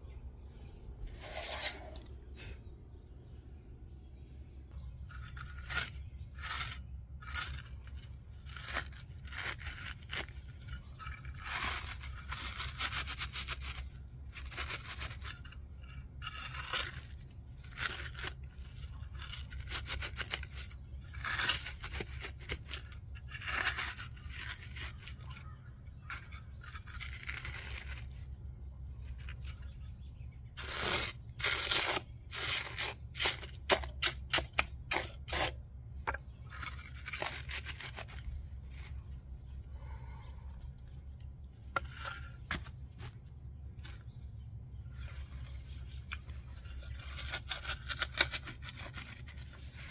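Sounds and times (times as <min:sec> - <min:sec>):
hand trowel scraping soil: 0:01.0 - 0:02.6, 0:04.9 - 0:39.8, 0:40.7 - 0:44.2, 0:44.8 - 0:49.9
wooden boards scraping on gravel: 0:01.0 - 0:02.6, 0:05.0 - 0:28.3, 0:30.5 - 0:39.2, 0:41.6 - 0:44.2
steady low hum: 0:20.6 - 0:48.0.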